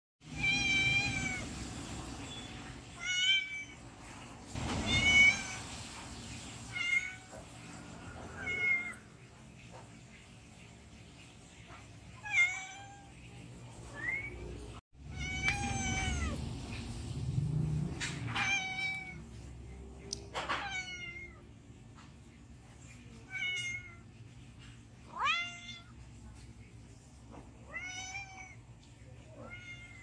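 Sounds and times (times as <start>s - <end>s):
cat meowing: 0.2s - 1.6s, 2.9s - 3.8s, 4.6s - 5.8s, 8.1s - 9.1s, 12.2s - 13.3s, 15.0s - 16.4s, 18.2s - 19.4s, 20.4s - 21.5s, 23.2s - 24.1s, 25.1s - 26.0s, 27.6s - 30.0s.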